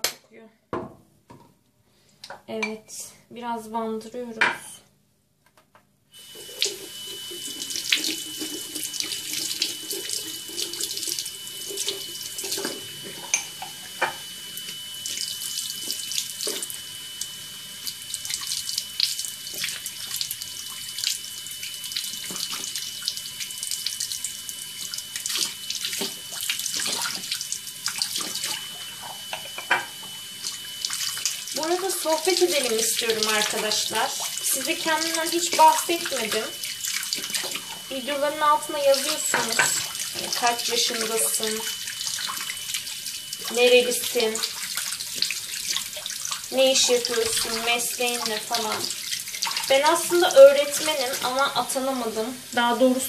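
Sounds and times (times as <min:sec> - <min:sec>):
thin high whine: 0:06.1 - 0:44.6
tap running into basin: 0:06.2 - 0:51.8.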